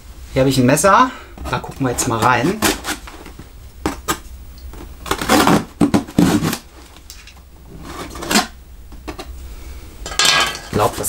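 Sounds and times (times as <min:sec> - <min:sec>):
cardboard rustling: 0:01.4 - 0:08.5
knife cutting packing tape: 0:02.4 - 0:03.3, 0:05.0 - 0:07.3.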